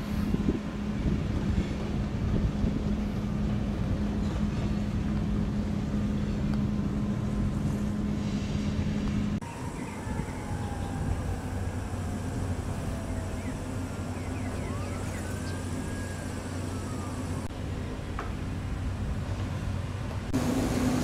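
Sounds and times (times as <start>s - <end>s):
wind on microphone: 0.0s - 16.4s
engine rumble: 0.0s - 21.0s.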